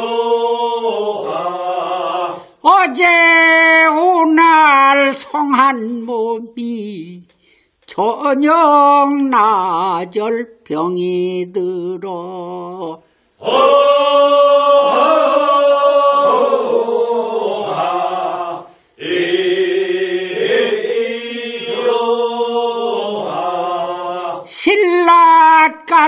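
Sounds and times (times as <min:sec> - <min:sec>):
group of voices singing: 0:00.0 - 0:03.4, 0:12.0 - 0:25.3.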